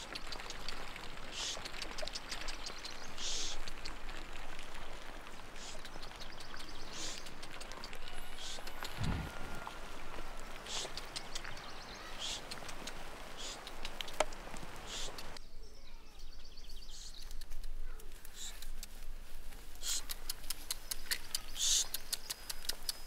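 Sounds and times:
background hiss: 0:01.2 - 0:07.4, 0:08.0 - 0:15.4.

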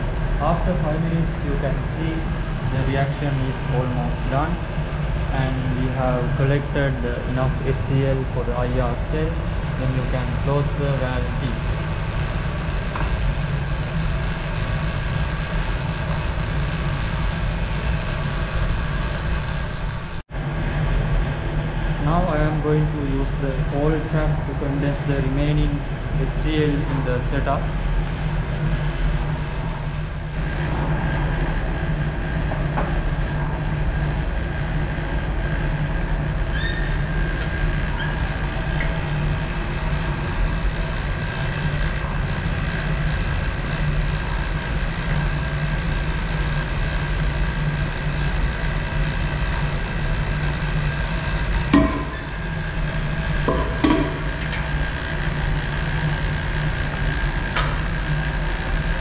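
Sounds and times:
lab equipment humming: 0:00.0 - 0:59.0
thin high whine: 0:00.0 - 0:59.0.

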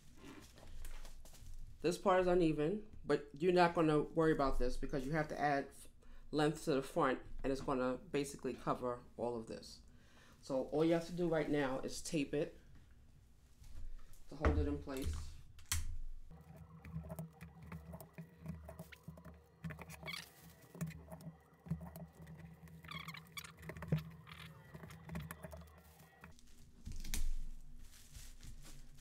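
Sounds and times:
paper rustling and crinkling: 0:19.8 - 0:29.0.

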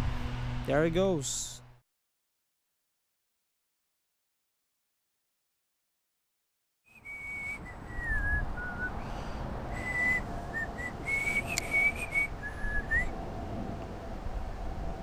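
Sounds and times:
person whistling a slow tune: 0:06.9 - 0:08.9, 0:09.7 - 0:13.1.

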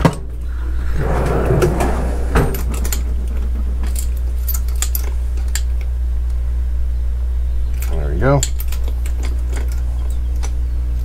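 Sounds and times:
low hum: 0:00.0 - 0:11.0
metal sockets clinking: 0:02.5 - 0:05.9, 0:07.7 - 0:11.0.

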